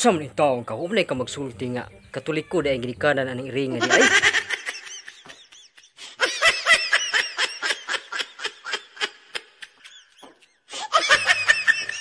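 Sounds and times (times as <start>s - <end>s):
high-pitched laughter: 3.8s - 12.0s.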